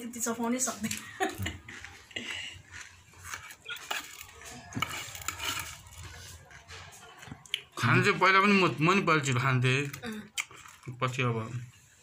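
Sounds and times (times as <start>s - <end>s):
metal spoon scraping ceramic plate: 3.3s - 6.0s.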